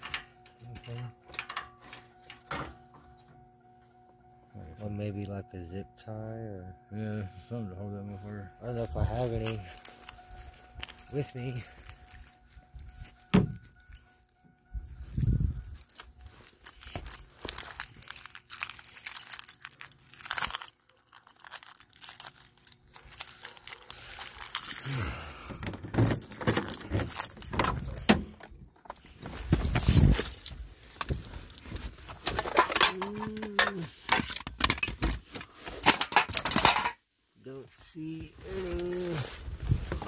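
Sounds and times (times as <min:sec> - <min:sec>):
rummaging through loose items: 0:08.5 - 0:37.0, 0:38.0 - 0:40.0.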